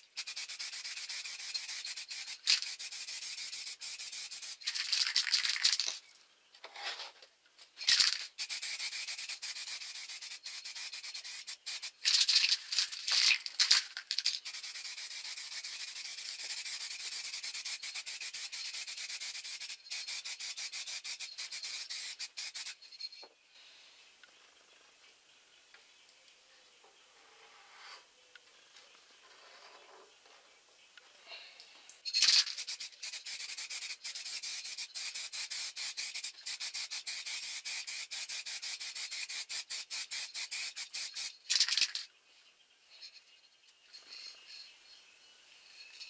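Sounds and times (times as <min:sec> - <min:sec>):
aerosol can spraying: 0:00.0 - 0:05.9, 0:07.9 - 0:22.8, 0:32.2 - 0:41.4.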